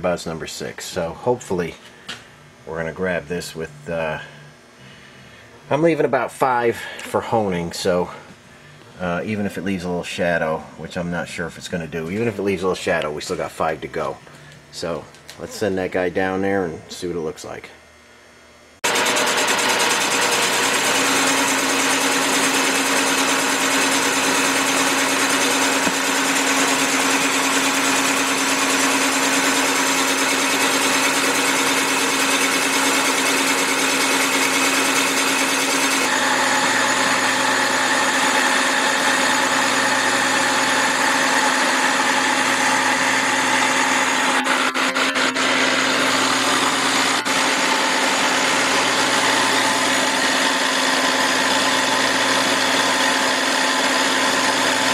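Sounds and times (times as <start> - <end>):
boring machine running: 18.8 - 54.9
higher machine tone: 38.9 - 51.2.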